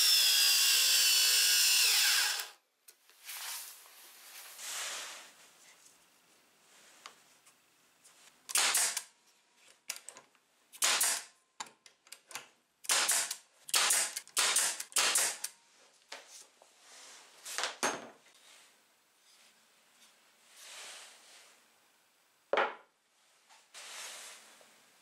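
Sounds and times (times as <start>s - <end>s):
nail gun firing into wood: 8.5s - 9.1s, 10.8s - 11.3s, 12.8s - 15.5s.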